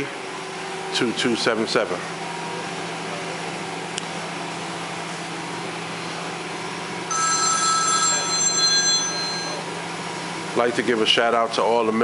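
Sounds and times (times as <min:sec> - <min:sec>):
telephone bell ringing: 0:07.1 - 0:09.8.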